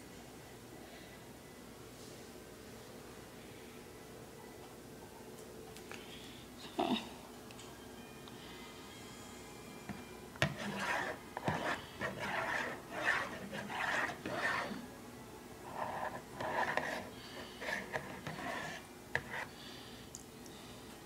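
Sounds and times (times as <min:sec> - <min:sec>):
rasping scrapes and rubs: 0:10.4 - 0:14.8, 0:15.7 - 0:19.5.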